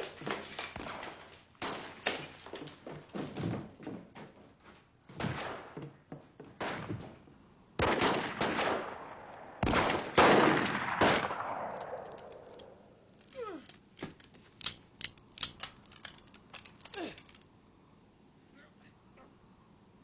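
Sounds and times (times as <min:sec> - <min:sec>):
gunshots echoing: 0:05.2 - 0:05.8, 0:07.8 - 0:13.0.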